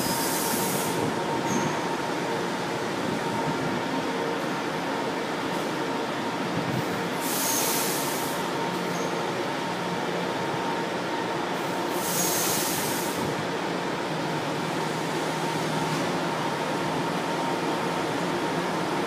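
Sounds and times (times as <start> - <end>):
metro train rumbling: 0.0 - 19.0
brief high hisses: 7.2 - 8.4, 12.0 - 13.2.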